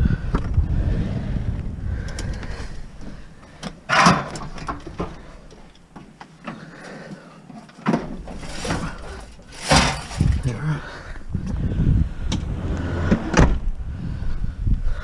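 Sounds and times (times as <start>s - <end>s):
low rumbling handling noise: 0.0s - 6.7s, 7.8s - 14.9s
loud metal clatter: 8.4s - 10.5s.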